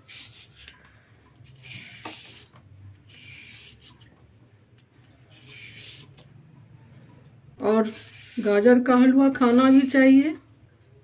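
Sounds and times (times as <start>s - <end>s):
peeler scraping a carrot: 0.0s - 0.8s, 1.4s - 4.1s, 5.3s - 6.2s, 7.7s - 10.0s.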